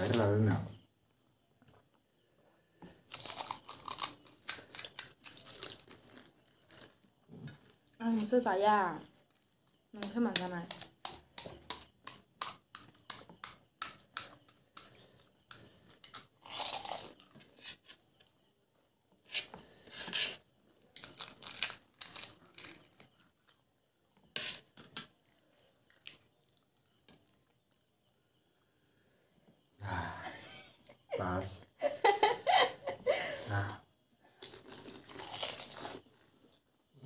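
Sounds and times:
chewing and crunching: 2.9s - 8.0s, 9.0s - 9.8s, 10.8s - 17.6s, 20.8s - 27.8s, 34.3s - 36.8s
crisp shells cracking: 3.1s - 6.9s, 16.0s - 17.2s, 21.0s - 23.1s, 34.4s - 36.1s.

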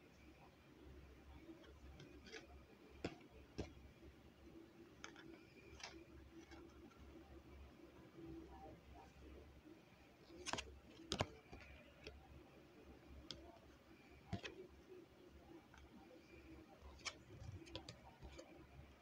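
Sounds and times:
cards clicking and tapping: 1.6s - 3.8s, 4.9s - 6.9s, 10.3s - 12.2s, 14.2s - 14.7s, 15.8s - 18.6s.

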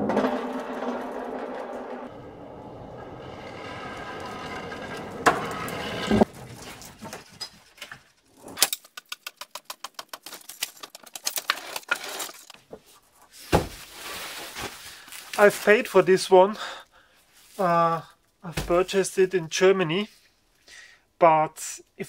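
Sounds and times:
pallet truck wheels rumbling: 0.0s - 7.7s.

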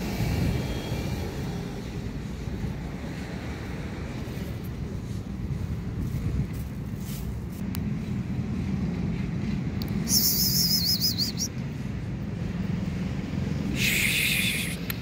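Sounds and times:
street traffic rumble: 0.0s - 15.0s
short hissing burst: 13.7s - 14.9s.

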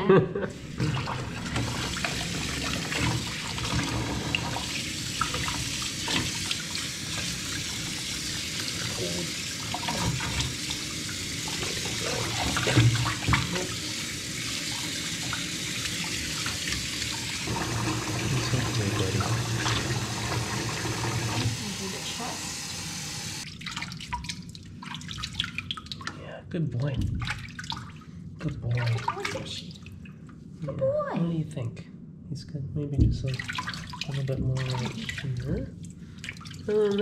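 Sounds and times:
water splashing: 0.5s - 22.4s, 23.4s - 26.2s, 26.8s - 30.2s, 33.2s - 37.0s
faucet running into metal sink: 0.6s - 23.4s.

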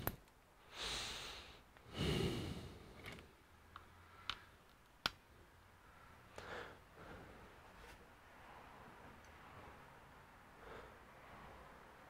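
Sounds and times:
small sharp clicks: 3.0s - 5.2s.

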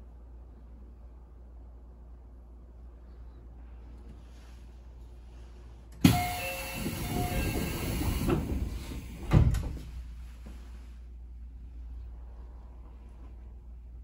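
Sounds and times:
rush of air from doors: 4.2s - 11.1s
doors shutting thud: 6.0s - 10.0s.

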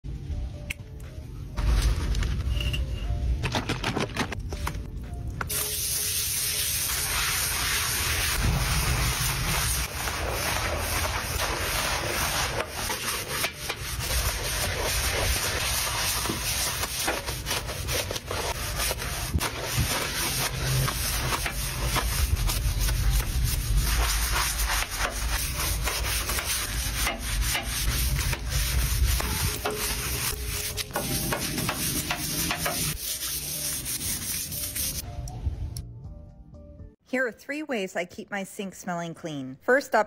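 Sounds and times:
plastic brush scrubbing a tub: 6.7s - 35.0s
plastic scraper scraping paste: 9.9s - 33.3s.

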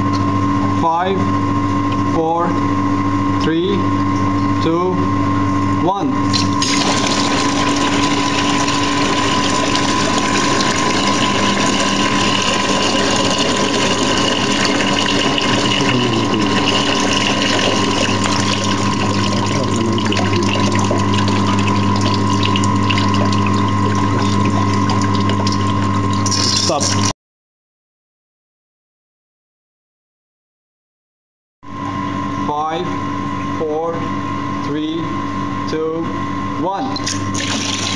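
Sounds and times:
steady hum: 0.0s - 27.1s, 31.6s - 37.9s
water gushing from a tank: 6.3s - 27.1s, 37.0s - 37.9s.

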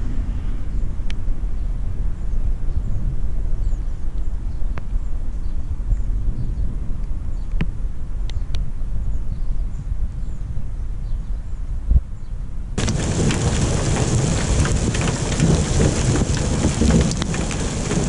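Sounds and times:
thunder rumble: 0.0s - 2.3s, 12.8s - 18.0s
heavy rain: 12.8s - 18.0s.

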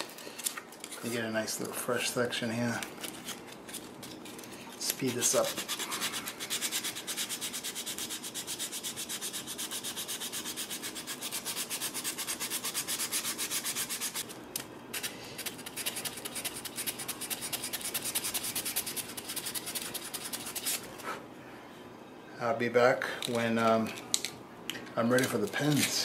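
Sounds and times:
hand sanding with abrasive paper: 4.9s - 14.2s, 15.0s - 20.9s.

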